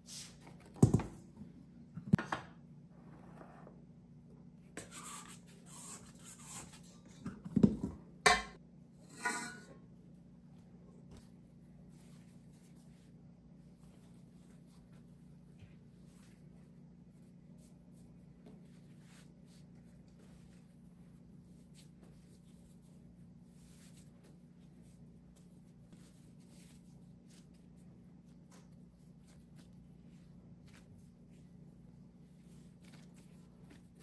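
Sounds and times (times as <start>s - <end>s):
hands shaping dough: 10.4s - 34.0s.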